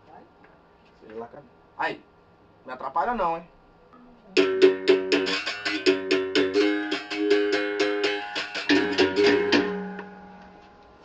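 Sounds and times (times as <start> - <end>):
berimbau struck with a stick: 4.4 - 10.3.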